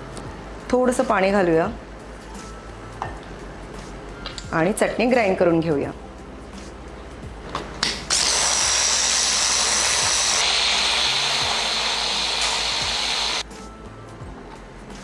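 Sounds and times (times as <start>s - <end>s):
hand blender motor grinding: 8.1s - 13.4s.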